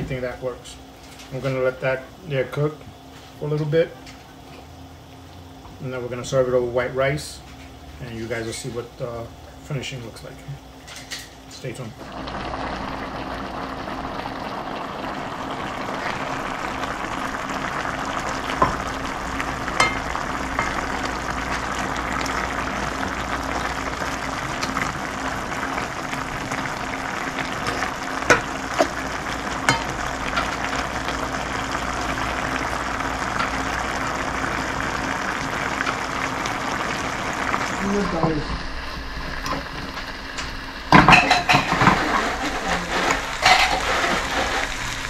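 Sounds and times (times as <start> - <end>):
food sizzling in a frying pan: 10.6 - 45.0.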